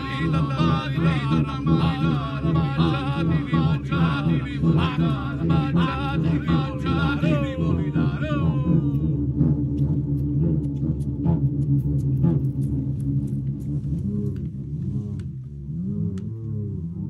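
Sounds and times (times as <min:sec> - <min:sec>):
voices singing with vibrato: 0:00.0 - 0:09.4
low pulsing drone: 0:00.0 - 0:17.0.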